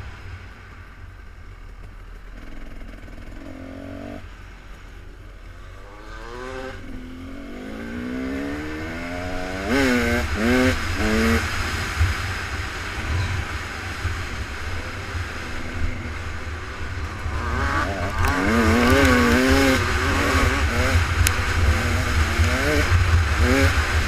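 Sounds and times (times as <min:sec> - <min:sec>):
steady low rumble: 0:00.0 - 0:24.0
offroad racing engines revving: 0:05.5 - 0:24.0.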